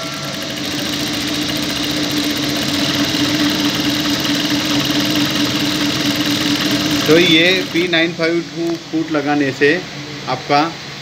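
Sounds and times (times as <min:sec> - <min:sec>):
sewing machine running: 0:00.0 - 0:08.8.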